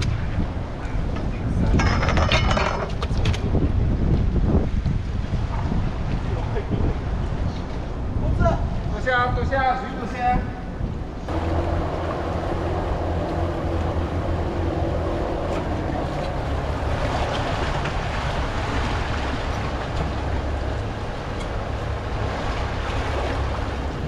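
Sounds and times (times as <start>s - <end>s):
water washing against hull: 0.0s - 24.0s
boat engine humming: 9.9s - 24.0s.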